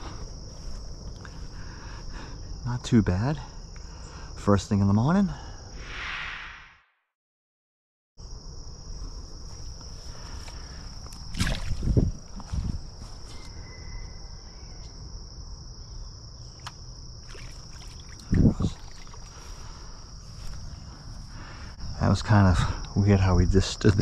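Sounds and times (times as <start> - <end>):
high-pitched insect trill: 8.2 - 24.0.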